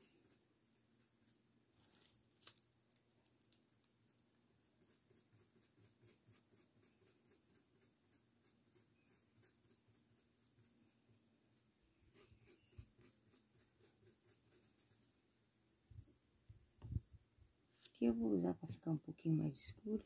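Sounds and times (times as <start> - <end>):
paintbrush scratching fabric: 0.0 - 2.1, 3.9 - 15.2
brush scraping paint pot: 4.0 - 15.1.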